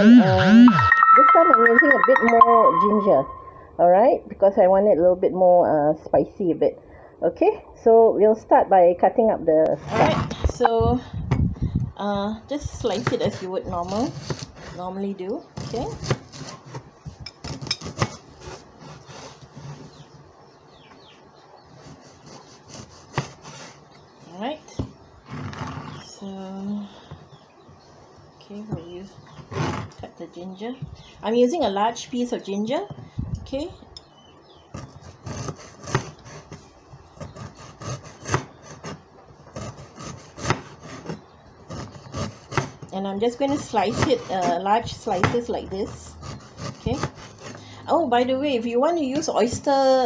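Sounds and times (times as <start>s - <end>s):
faint falling chirps: 0.4s - 3.8s.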